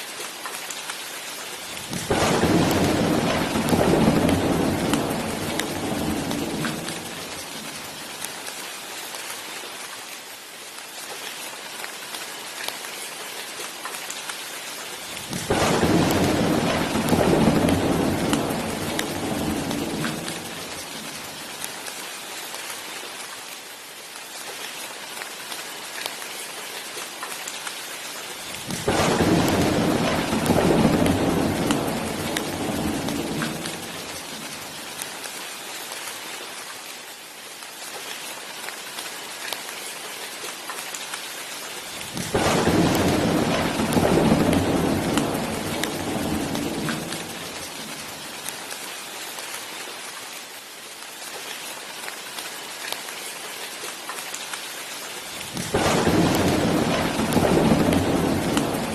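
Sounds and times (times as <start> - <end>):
steady rain: 0.0 - 58.9
rolling thunder: 1.9 - 7.8, 15.3 - 20.8, 28.5 - 34.6, 42.0 - 48.2, 55.5 - 58.9.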